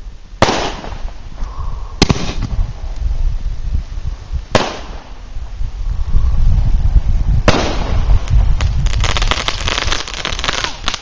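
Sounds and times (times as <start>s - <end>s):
fireworks bangs: 2.0s - 2.8s, 4.5s - 5.2s, 7.4s - 11.0s.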